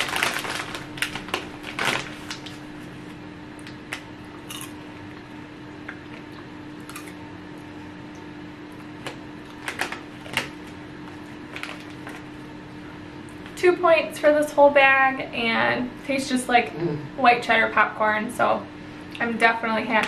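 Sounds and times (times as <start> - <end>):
snack bag crinkling: 0.0 - 5.1, 8.8 - 12.4
steady low hum: 0.0 - 20.0.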